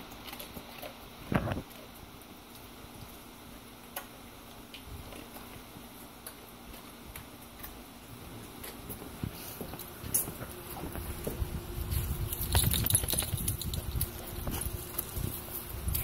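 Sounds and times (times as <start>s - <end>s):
dog claws clicking on concrete: 0.0s - 2.7s, 3.9s - 7.8s, 9.8s - 16.0s.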